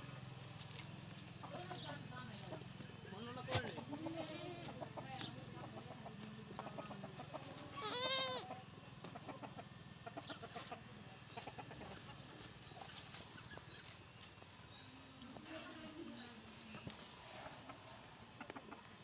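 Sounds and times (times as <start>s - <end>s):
goat bleating: 4.0s - 4.8s, 7.6s - 8.5s.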